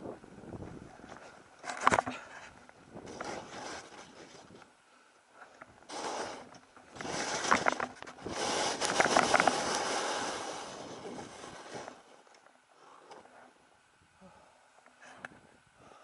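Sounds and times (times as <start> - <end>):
skis hissing through snow: 5.9 - 12.2
snow crunching: 5.9 - 12.2.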